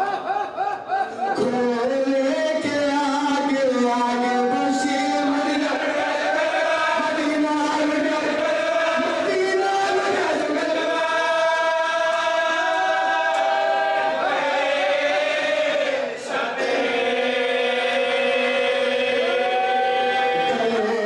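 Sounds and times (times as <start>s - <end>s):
man chanting into microphone: 1.4s - 6.0s, 6.6s - 12.6s, 20.0s - 21.0s
men's voices chanting: 4.2s - 21.0s.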